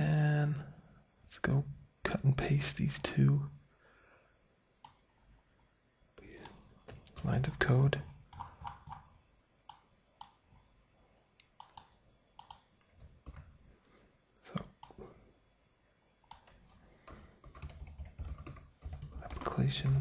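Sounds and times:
mouse clicks: 4.8 - 5.0, 11.4 - 13.4
keyboard keystrokes: 8.3 - 9.1, 11.6 - 13.5, 16.3 - 20.0.

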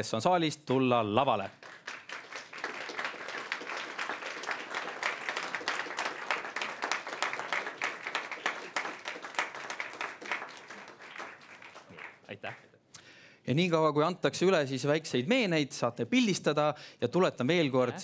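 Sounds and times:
audience applauding: 1.5 - 12.7.

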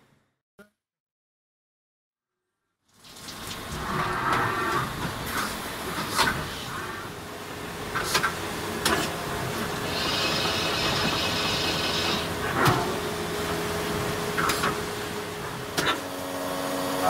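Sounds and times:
constant machine hum: 3.4 - 17.0.

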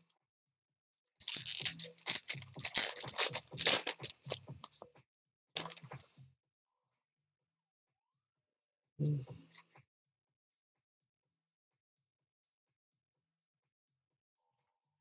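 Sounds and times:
foil wrapper tearing and crinkling: 1.2 - 4.4.

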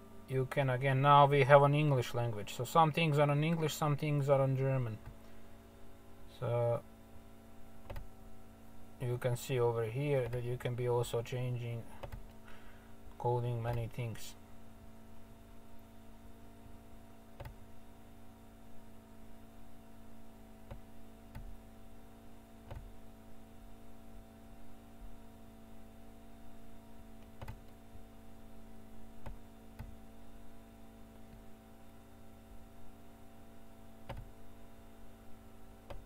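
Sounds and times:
steady electrical hum: 0.0 - 36.0
computer mouse clicks: 27.2 - 27.8.

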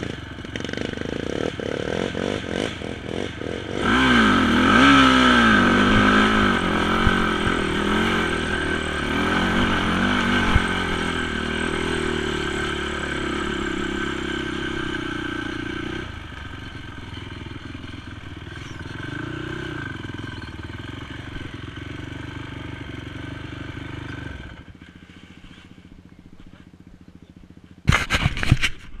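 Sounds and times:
quad engine revving: 0.0 - 26.5.

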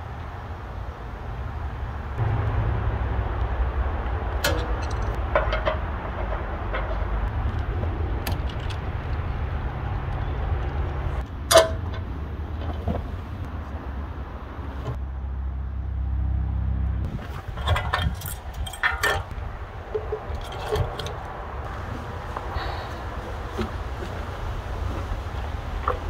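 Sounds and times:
tools clanking on steel: 4.4 - 9.2, 11.2 - 13.1, 17.1 - 21.7.

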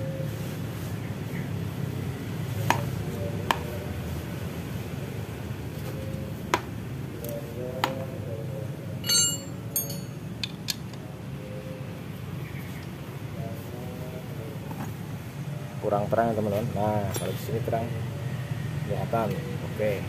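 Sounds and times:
steady low hum: 0.0 - 20.0
ringing clink of steel: 9.0 - 10.2.

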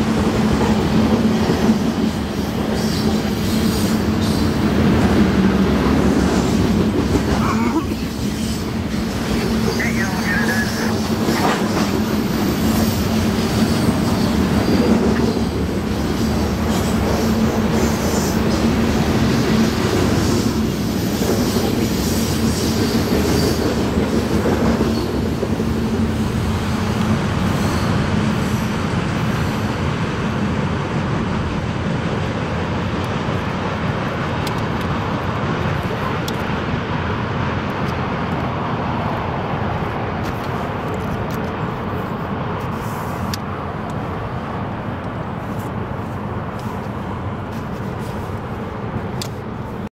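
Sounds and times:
train wheels rumbling and clattering: 0.0 - 49.9.

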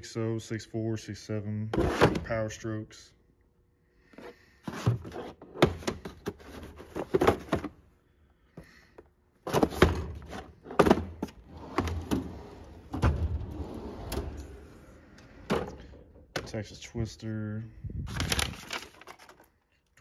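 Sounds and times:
drawer sliding: 9.5 - 16.2.

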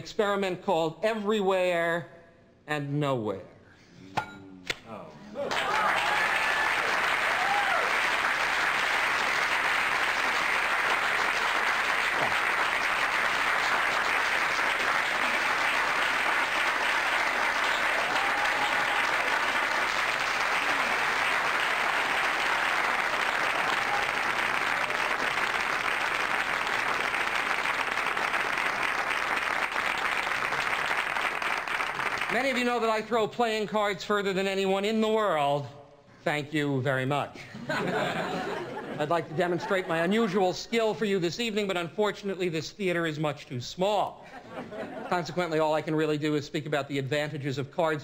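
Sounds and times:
audience applauding: 5.4 - 32.6.

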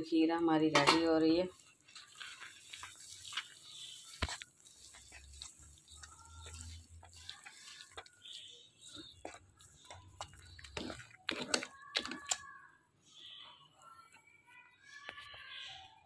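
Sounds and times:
spoon stirring thick food in a pan: 0.7 - 12.8.

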